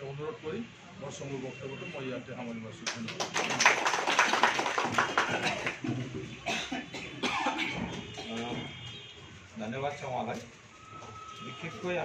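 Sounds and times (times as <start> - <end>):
man coughing: 5.3 - 5.8, 6.4 - 8.4.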